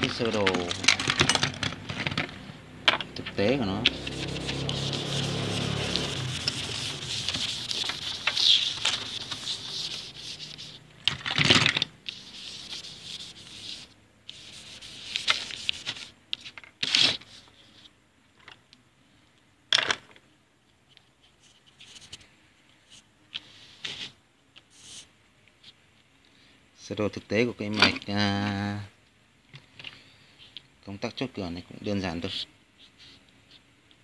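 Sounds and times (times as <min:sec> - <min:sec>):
hand rubbing whiteboard: 0:03.4 - 0:11.0, 0:12.0 - 0:16.1.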